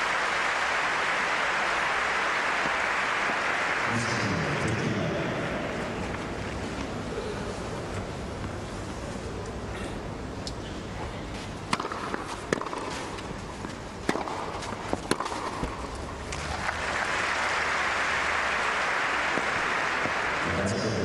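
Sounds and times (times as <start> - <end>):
crowd applause: 0.0 - 6.1, 16.3 - 21.0
tennis ball hit by rackets: 11.7 - 16.7.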